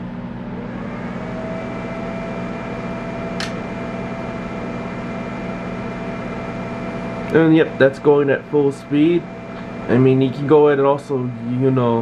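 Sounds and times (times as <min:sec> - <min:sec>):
cooling fan whirring: 0:00.0 - 0:12.0.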